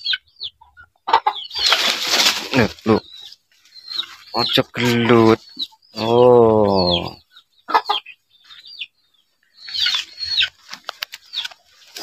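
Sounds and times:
small birds chirping: 0.0s - 12.0s
leafy stalks rustling: 1.5s - 5.3s, 9.8s - 12.0s.

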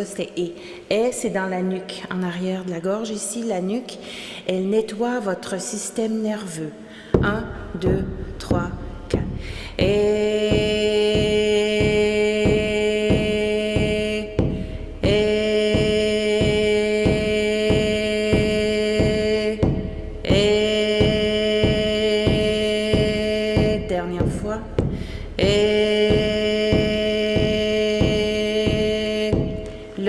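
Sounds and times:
frame drum beat: 7.2s - 29.8s
woman chanting long held tones: 7.8s - 24.7s, 25.4s - 29.6s.

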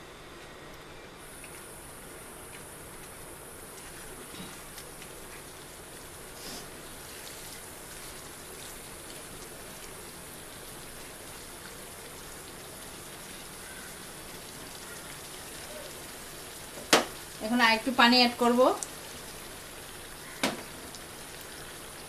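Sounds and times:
prawns sizzling in a pan: 1.2s - 22.0s.

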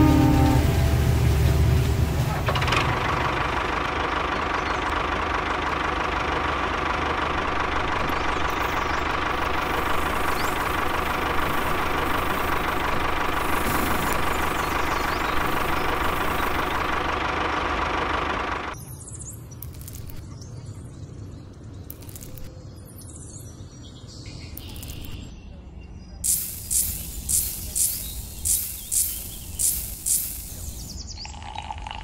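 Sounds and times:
tractor engine running: 0.0s - 18.8s, 26.3s - 31.0s.

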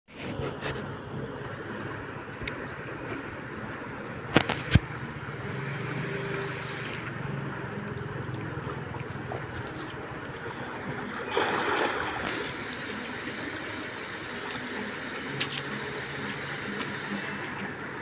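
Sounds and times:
outdoor background noise: 0.1s - 18.0s
net splashing onto water: 11.3s - 12.5s
sharp clicks: 15.4s - 15.7s.

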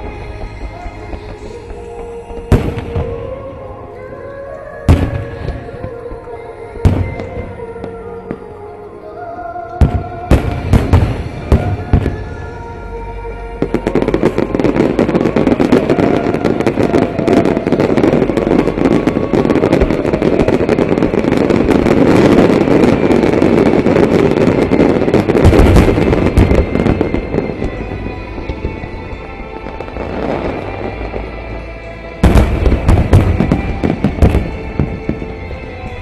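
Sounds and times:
dense fireworks crackle: 0.0s - 8.6s, 9.8s - 36.0s
heavy firework booms: 9.8s - 12.4s, 13.6s - 31.2s, 32.2s - 36.0s.

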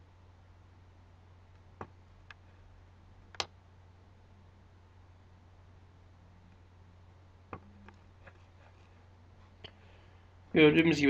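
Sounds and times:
faint low hum: 0.0s - 11.0s
computer mouse click: 3.3s - 3.5s.

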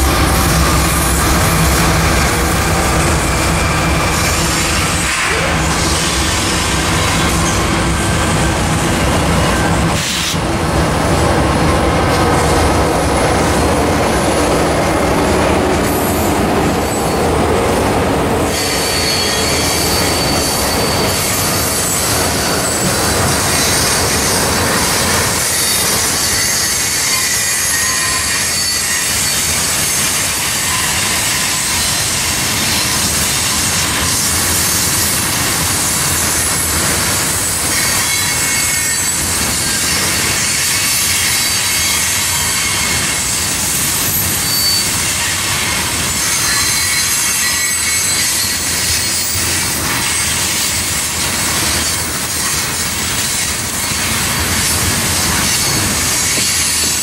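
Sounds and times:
diesel locomotives running past: 0.0s - 57.0s
train wheel clatter: 0.0s - 57.0s
high-pitched wheel squeal: 18.5s - 32.1s, 44.1s - 49.5s.

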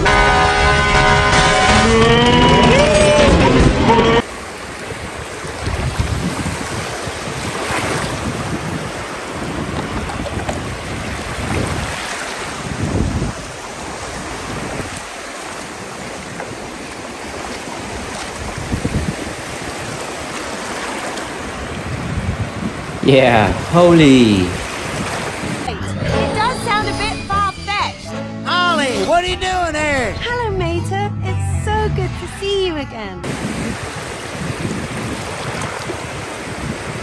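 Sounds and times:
small waves washing ashore: 4.2s - 25.7s, 33.2s - 37.0s
wind buffeting microphone: 4.8s - 15.2s, 17.9s - 20.3s, 21.4s - 23.0s, 33.2s - 37.0s.

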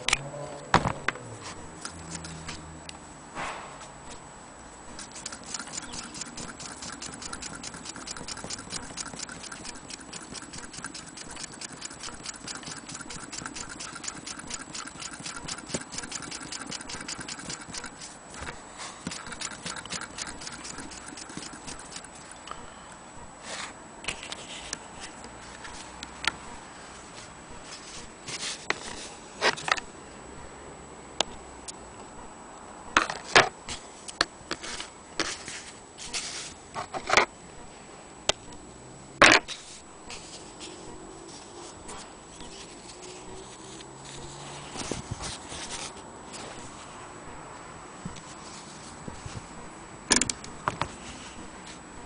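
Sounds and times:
sewing machine ticking: 5.0s - 18.0s, 19.1s - 22.4s
knocks and clicks: 5.0s - 22.4s.

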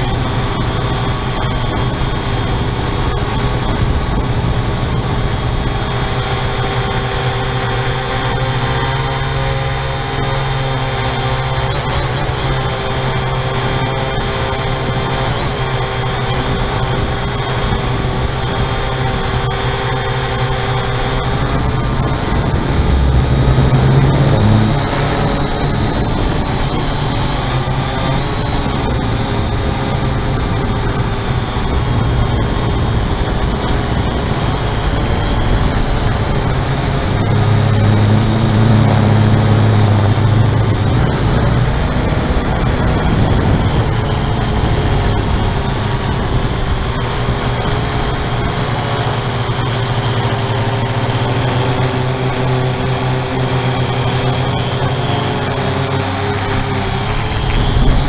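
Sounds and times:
drone propellers whirring: 0.0s - 58.0s
low rumble: 20.6s - 27.5s.

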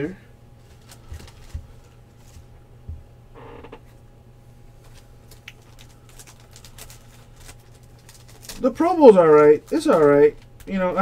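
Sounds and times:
low electrical hum: 0.0s - 11.0s
cards and packaging handled: 0.6s - 2.5s, 4.8s - 10.7s.

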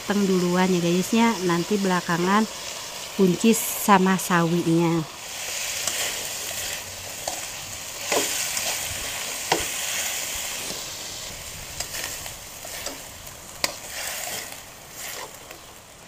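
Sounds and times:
food sizzling in a wok: 0.0s - 16.0s
spatula scraping a pan: 5.3s - 15.7s.

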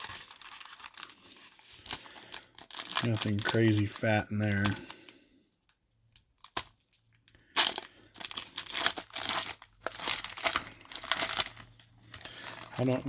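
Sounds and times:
foil wrappers crinkling: 0.0s - 5.2s, 6.2s - 13.0s.

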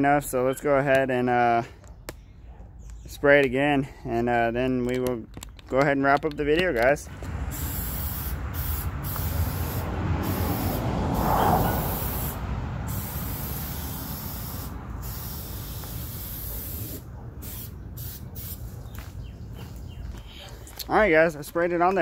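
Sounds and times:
aerosol spray hissing: 7.5s - 18.6s.

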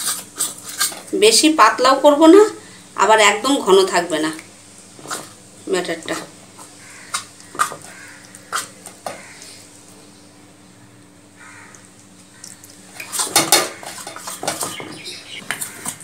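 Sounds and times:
spoon scraping metal bowl: 0.0s - 1.0s
faint steady hum: 0.0s - 16.0s.

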